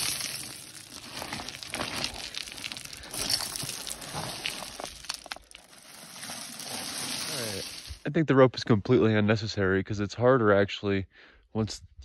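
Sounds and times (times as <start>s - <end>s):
footsteps crunching on scree: 0.0s - 8.0s
small stones clicking: 0.0s - 8.0s.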